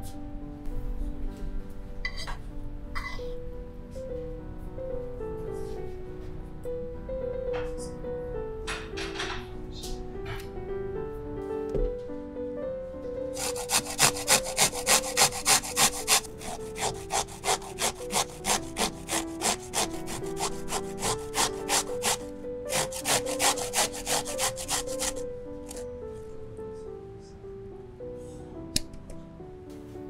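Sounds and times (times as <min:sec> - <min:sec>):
background music: 0:00.0 - 0:30.0
grating on a metal grater: 0:13.4 - 0:25.8.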